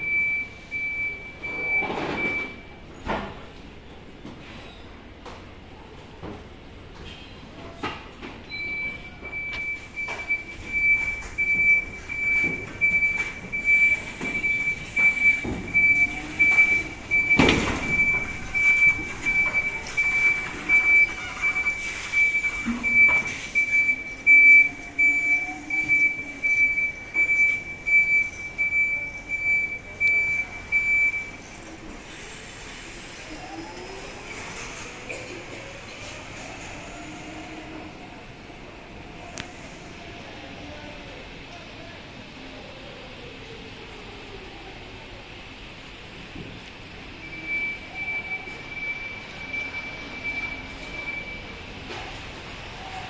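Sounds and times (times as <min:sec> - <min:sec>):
reversing alarm beeping: 0:00.0 - 0:02.8, 0:08.5 - 0:31.6, 0:47.2 - 0:51.7.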